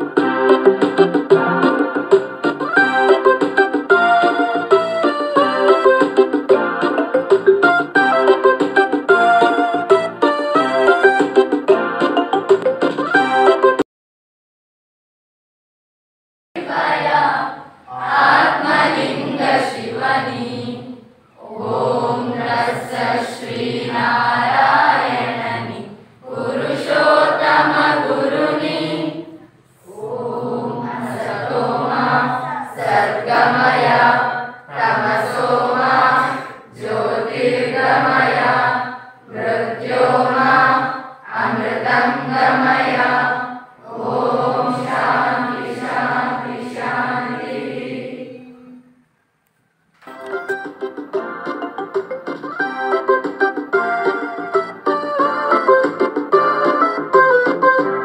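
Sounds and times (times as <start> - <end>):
group chanting a prayer: 16.6 - 48.9.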